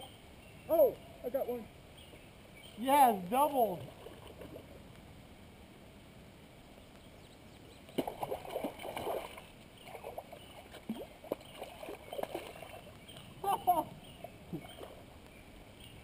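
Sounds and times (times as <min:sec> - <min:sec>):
steady low hiss: 0:00.0 - 0:16.0
fish splashing in water: 0:08.0 - 0:12.9.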